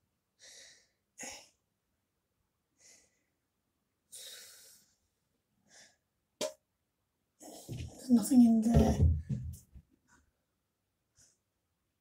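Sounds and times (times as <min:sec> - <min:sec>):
breathing: 0:00.4 - 0:01.6, 0:02.8 - 0:03.4, 0:04.1 - 0:06.1.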